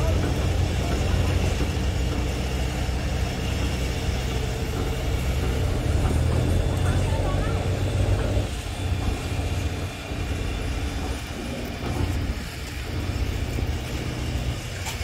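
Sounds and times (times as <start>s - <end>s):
heavy engine humming: 0.0s - 15.0s.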